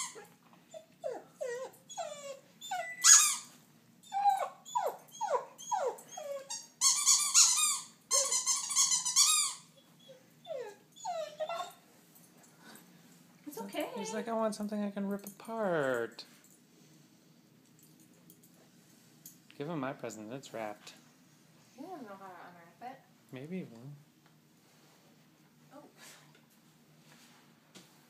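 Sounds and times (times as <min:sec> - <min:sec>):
dog whining: 0:00.0 - 0:11.8.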